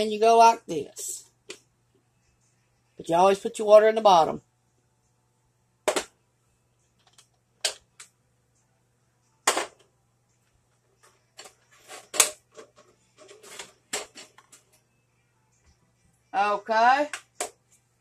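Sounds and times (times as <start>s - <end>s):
plastic parts knocking and clattering: 5.8s - 6.2s, 7.0s - 8.1s, 11.0s - 14.7s.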